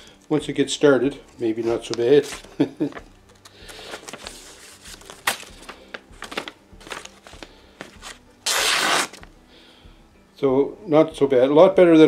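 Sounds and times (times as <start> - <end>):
knife slicing through paper: 8.5 - 9.2.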